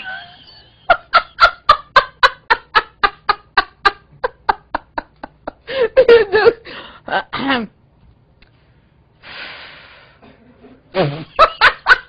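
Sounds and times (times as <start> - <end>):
woman laughing: 0.0 - 6.6, 11.0 - 12.0.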